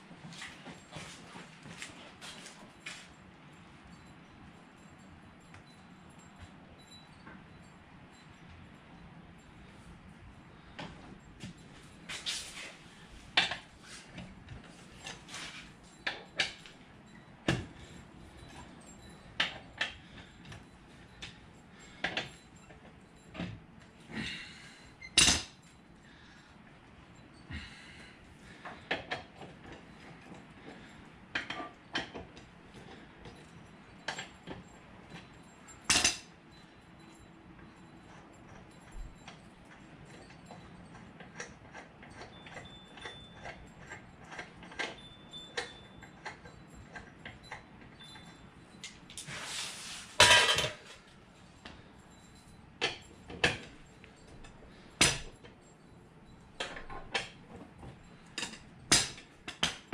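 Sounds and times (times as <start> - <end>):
metal tool clinks and knocks: 28.5 - 59.9
metal clatter: 40.2 - 51.1.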